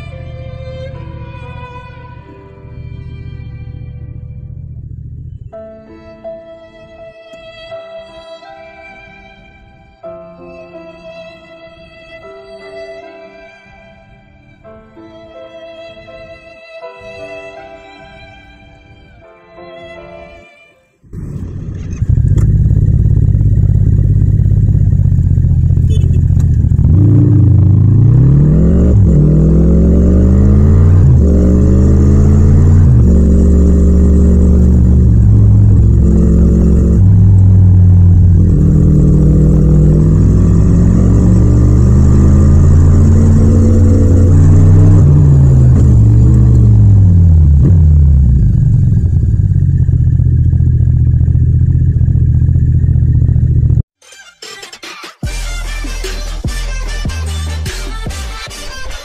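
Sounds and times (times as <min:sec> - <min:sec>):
motorcycle engine revving: 0:00.0 - 0:05.8, 0:21.1 - 0:53.9.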